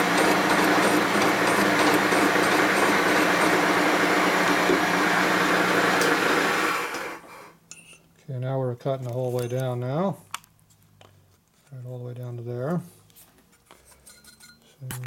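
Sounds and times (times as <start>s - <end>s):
metal cutting noise: 0.0s - 6.2s
milling machine motor whir: 0.0s - 7.3s.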